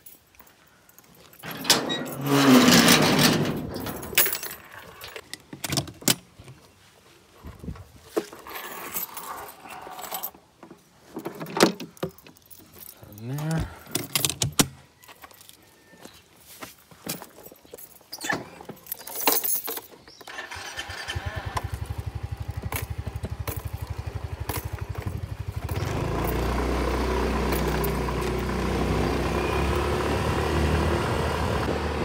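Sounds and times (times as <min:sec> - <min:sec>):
keys jangling: 0:00.0 - 0:05.2, 0:17.1 - 0:20.0
metal gate scraping and rattling: 0:01.4 - 0:05.2.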